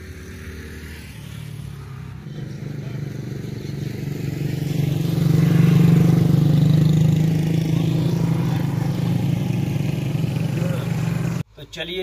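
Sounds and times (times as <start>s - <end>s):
motorcycle engine running: 1.8s - 11.4s.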